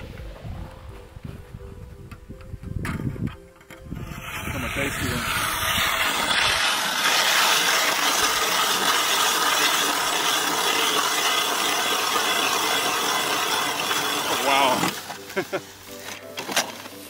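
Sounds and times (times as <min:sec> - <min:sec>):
ice auger grinding ice: 0:03.7 - 0:17.0.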